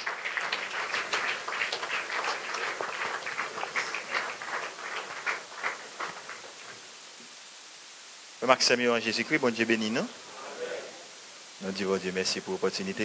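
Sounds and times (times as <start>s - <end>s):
congregation clapping: 0.0s - 7.4s.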